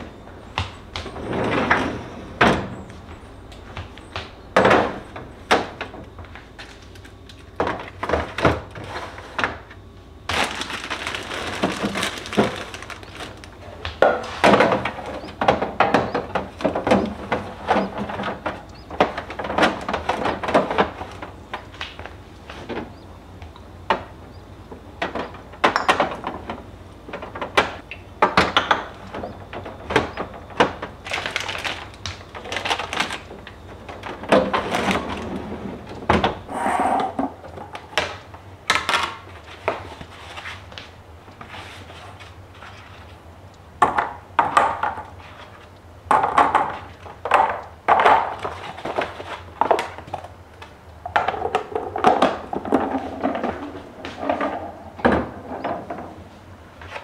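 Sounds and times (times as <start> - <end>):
plastic bins sliding onto shelves: 1.0 - 3.6, 10.3 - 21.9, 29.0 - 40.7, 51.1 - 57.0
plastic containers knocking and clattering: 2.4 - 23.0, 23.9 - 36.4, 43.8 - 57.0.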